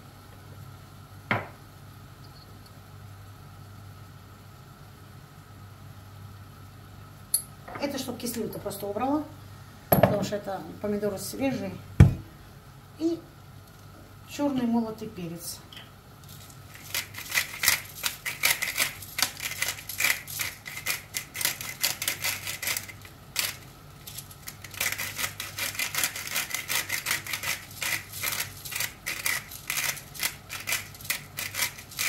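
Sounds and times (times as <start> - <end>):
tomatoes crackling in a frying pan: 16.1 - 32.0.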